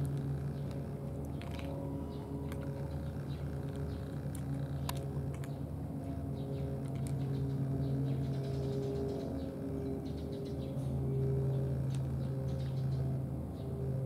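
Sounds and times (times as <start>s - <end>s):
cat chewing: 0.0s - 8.0s
low mechanical hum: 0.0s - 14.0s.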